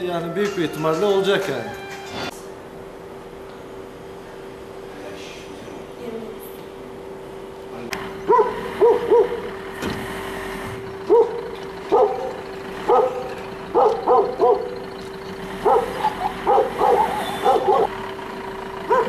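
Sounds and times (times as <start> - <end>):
dog barking: 8.3 - 9.5, 11.1 - 14.8, 15.6 - 18.0.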